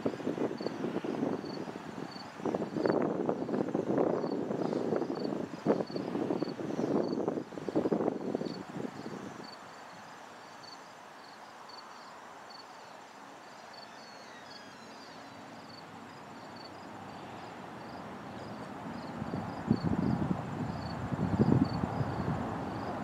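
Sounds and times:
crickets chirping: 0:00.0 - 0:23.0
high insect trill: 0:00.0 - 0:23.0.

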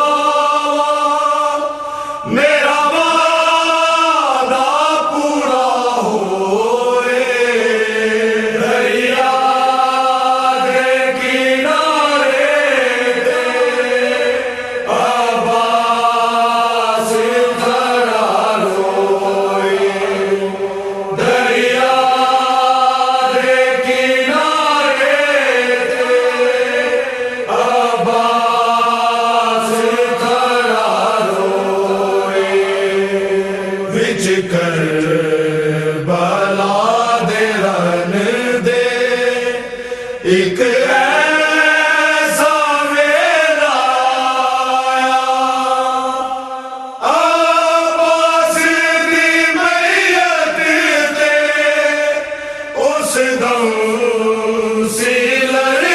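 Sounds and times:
person chanting a lament: 0:00.0 - 0:55.9.

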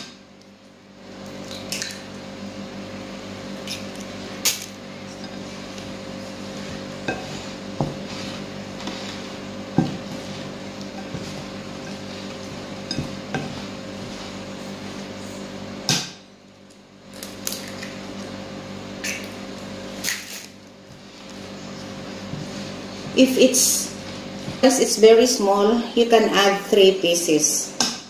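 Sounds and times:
steady low hum: 0:00.0 - 0:28.0
spoon stirring wet mixture: 0:03.6 - 0:15.5, 0:20.8 - 0:25.4.

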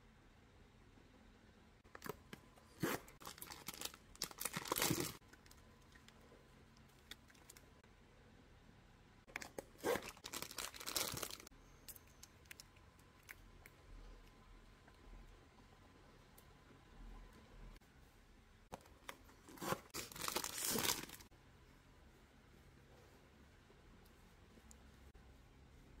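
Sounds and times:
packaging tearing and crinkling: 0:03.2 - 0:05.2, 0:09.9 - 0:11.5, 0:19.8 - 0:21.3.

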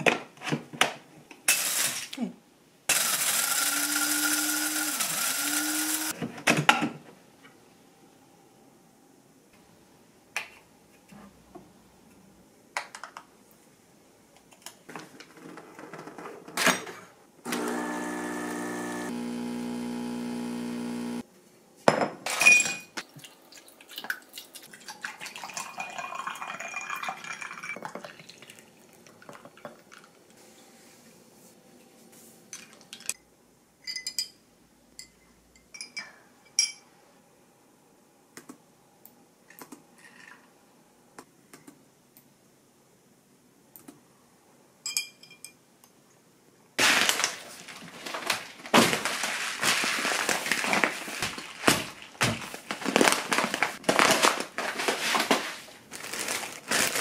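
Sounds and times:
kitchen machine humming: 0:02.9 - 0:06.1, 0:17.4 - 0:21.2
liquid pouring: 0:23.0 - 0:30.2.

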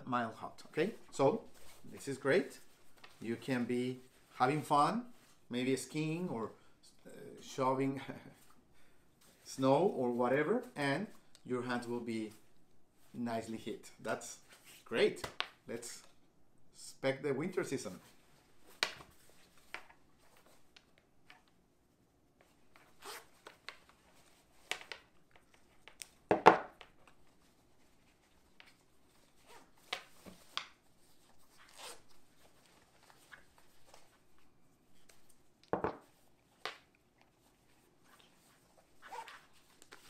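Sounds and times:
gloves rustling and rasping: 0:22.3 - 0:40.0.

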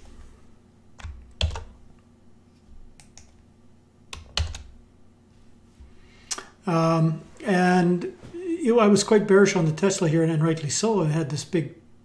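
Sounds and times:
computer keyboard keypresses: 0:01.0 - 0:01.7, 0:04.1 - 0:04.7.

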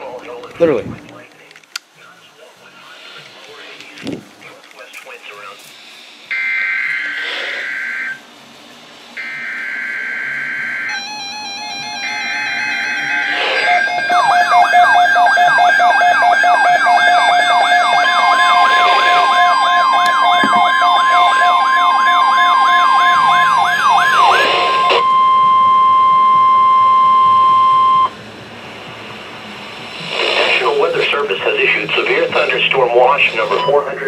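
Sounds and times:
sweeping siren tone: 0:06.3 - 0:08.2, 0:09.2 - 0:30.2
steady alert tone: 0:09.2 - 0:16.0, 0:16.9 - 0:28.1
pulsing beep: 0:22.2 - 0:28.2, 0:33.4 - 0:33.8.

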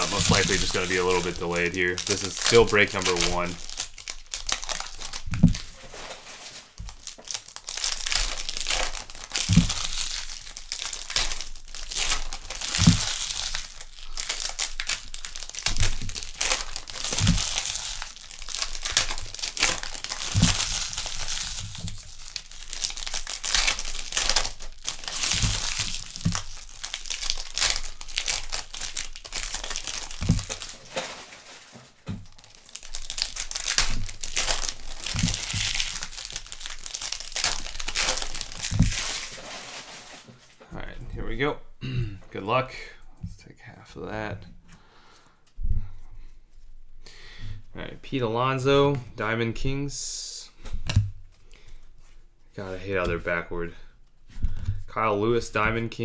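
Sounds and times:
card pack wrappers crinkling and tearing: 0:00.0 - 0:40.6
dull thumps: 0:05.2 - 0:06.2, 0:09.4 - 0:10.0, 0:30.1 - 0:32.4.

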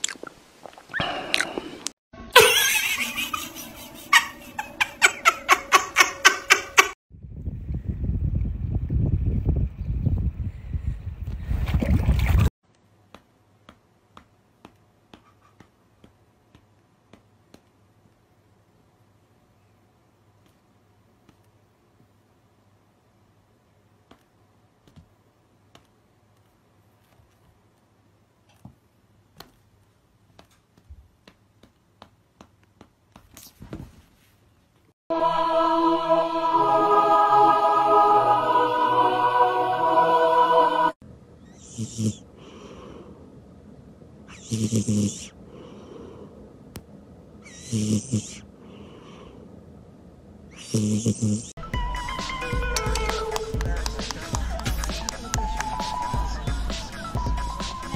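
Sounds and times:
faint clicks and taps: 0:12.7 - 0:18.2, 0:24.0 - 0:33.4
choir-like singing: 0:35.1 - 0:41.0.

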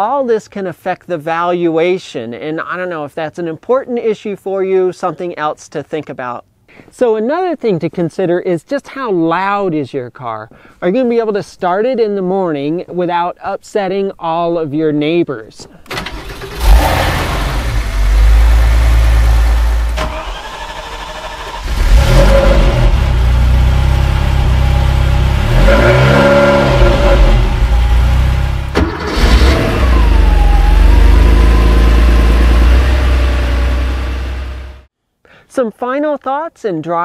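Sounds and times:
engine revving: 0:15.9 - 0:34.9
sports car engine running: 0:21.2 - 0:34.9.

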